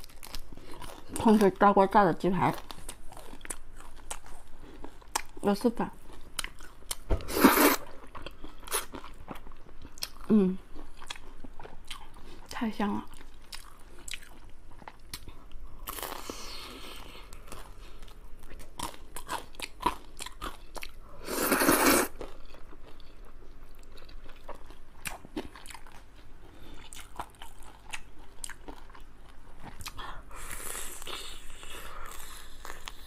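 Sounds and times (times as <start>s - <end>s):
loud slurp of noodles: 7.3s - 7.8s, 21.2s - 22.1s
crunchy bites and chewing: 13.1s - 33.0s.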